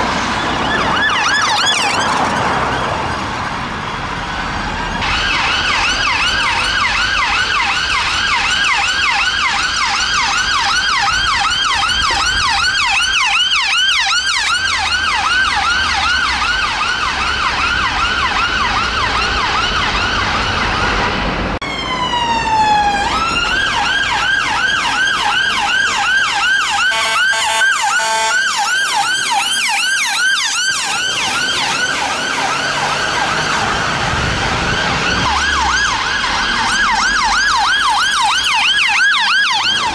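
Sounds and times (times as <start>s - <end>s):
emergency siren yelp: 0.0s - 39.9s
short steady siren tones: 26.3s - 33.4s.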